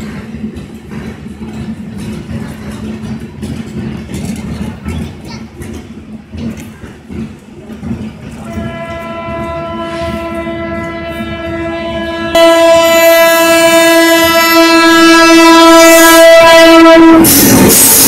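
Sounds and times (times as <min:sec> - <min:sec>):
train passing at speed: 0:00.0 - 0:18.0
train horn blast: 0:08.4 - 0:18.0.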